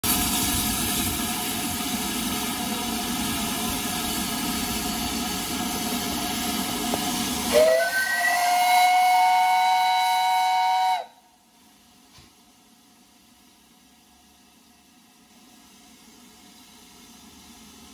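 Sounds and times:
steam hissing: 0.0 - 17.9
steam locomotive whistle: 7.4 - 11.3.

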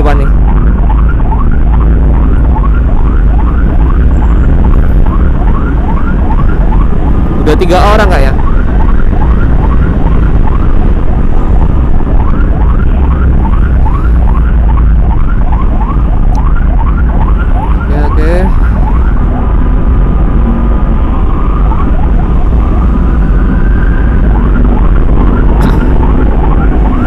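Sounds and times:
emergency siren: 0.0 - 27.0
vehicle engine and road noise: 0.0 - 27.0.

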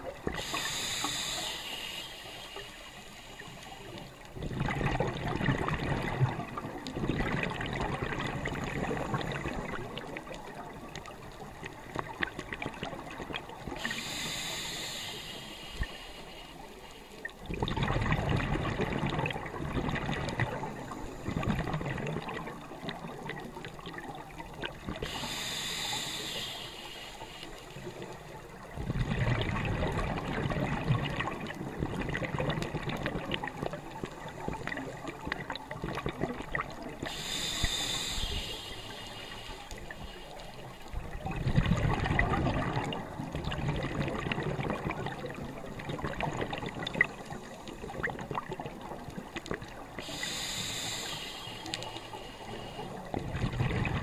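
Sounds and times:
hissing inhale: 0.3 - 4.2, 13.7 - 17.4, 20.6 - 21.5, 25.0 - 28.2, 37.0 - 40.9, 49.7 - 53.2
regulator bubbling exhales: 17.5 - 23.3, 28.6 - 33.8, 41.1 - 48.6, 49.5 - 54.0.

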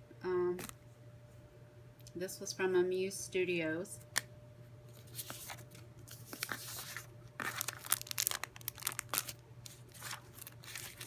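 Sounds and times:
plastic and paper crinkling: 4.9 - 11.0.

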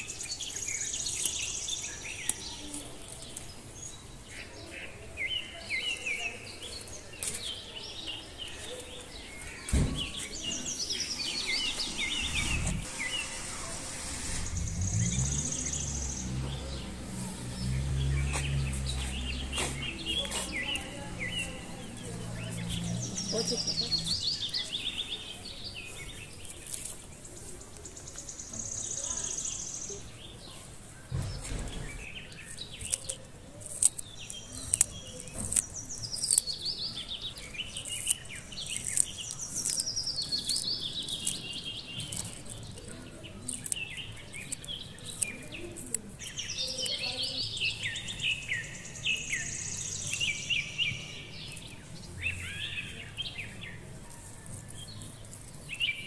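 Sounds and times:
low thump: 9.7 - 10.4
birds singing chirped phrases: 14.4 - 53.9.

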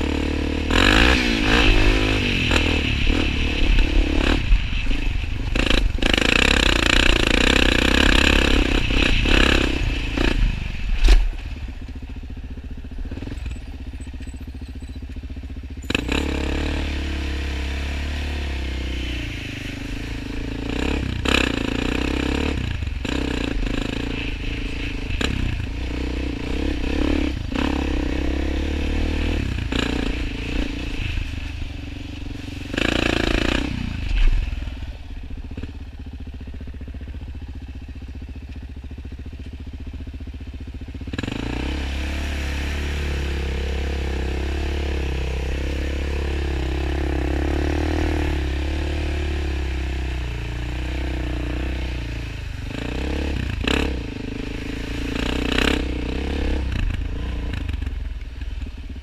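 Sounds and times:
quad engine under throttle: 0.0 - 59.0.

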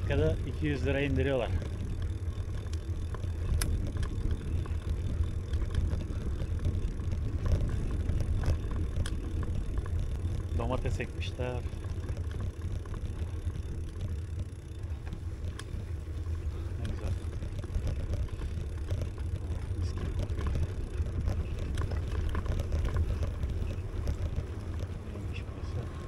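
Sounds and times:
bicycle tyre noise: 0.0 - 26.0
faint clicks: 1.6 - 14.2.

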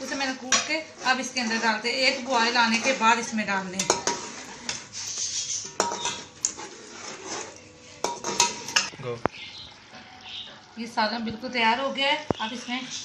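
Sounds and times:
spoon scraping and knocking pot: 0.0 - 8.9
spoon clinking on pot: 3.8 - 4.8, 5.6 - 6.6, 8.0 - 8.9.

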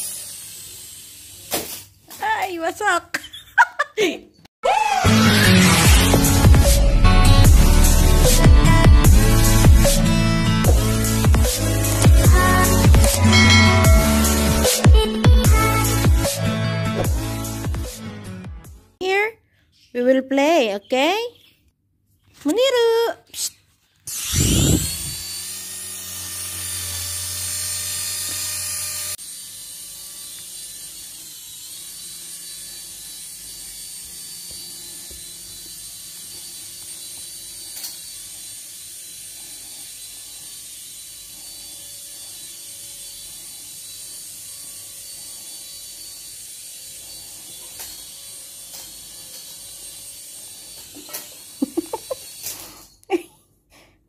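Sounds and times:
toy motor and propeller buzzing: 0.0 - 1.8, 23.4 - 53.2.

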